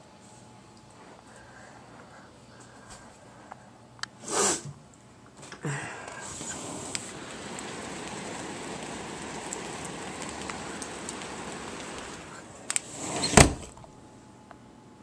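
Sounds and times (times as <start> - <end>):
steady rain falling: 5.7 - 13.2.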